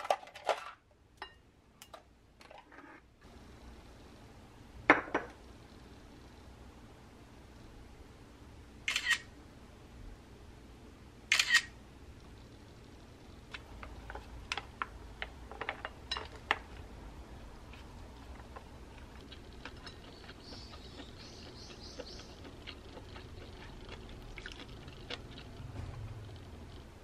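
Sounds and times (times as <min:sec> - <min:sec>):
bird chirping: 0:19.9 - 0:22.6.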